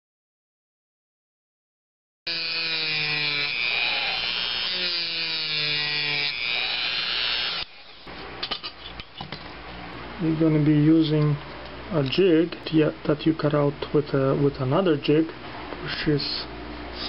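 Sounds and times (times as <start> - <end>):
rotary tool motor whine: 2.3 - 8.1.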